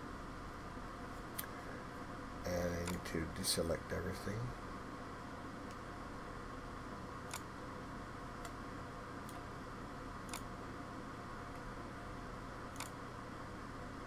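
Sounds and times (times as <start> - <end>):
low hum and hiss: 0.0 - 14.0
mouse and keyboard clicks: 7.3 - 7.5, 10.3 - 10.5, 12.7 - 13.0.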